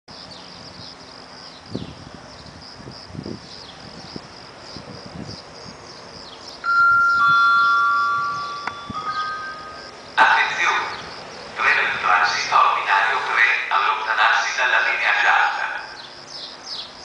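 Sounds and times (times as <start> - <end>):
insects chirring: 0.1 - 17.0
two-tone public address chime: 6.6 - 10.9.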